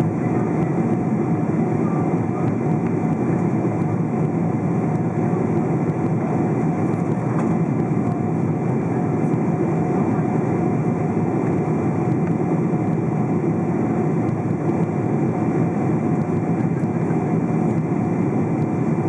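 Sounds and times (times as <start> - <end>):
jet engines and airflow in cabin: 0.0 - 19.0.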